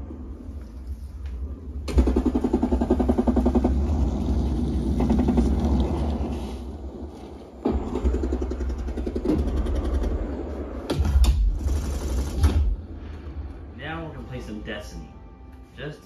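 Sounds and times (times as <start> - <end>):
fast rattling rhythm: 1.9 - 4.2, 7.7 - 12.8.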